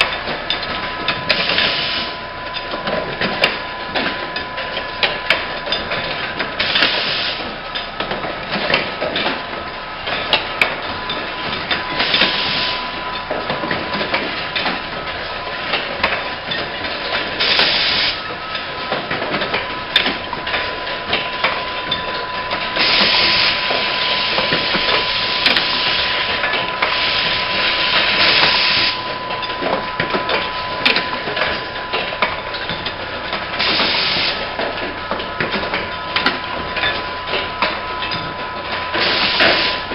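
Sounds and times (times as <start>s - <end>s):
high machine whine: 0.0s - 39.9s
pneumatic air hiss: 33.6s - 34.4s.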